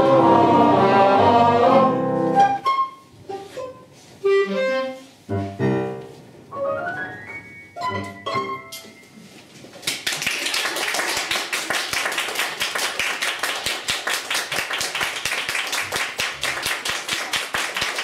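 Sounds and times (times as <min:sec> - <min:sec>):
small audience applause: 0:09.8 - 0:18.0.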